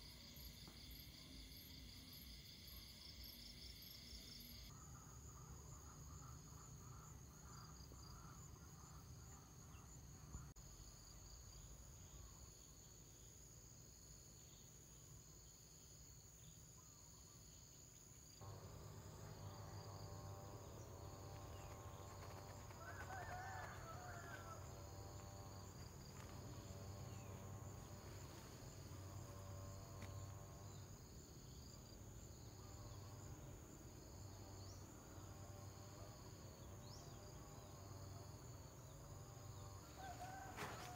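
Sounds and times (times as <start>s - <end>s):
insect trill with repeating chirp: 0.0s - 40.9s
low pulsing insect buzz: 0.0s - 40.9s
brief high insect call: 18.3s - 40.9s.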